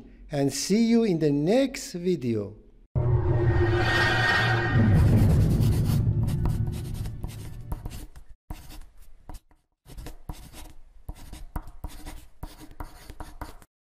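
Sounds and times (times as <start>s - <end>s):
marker scratching on paper: 5.2s - 13.7s.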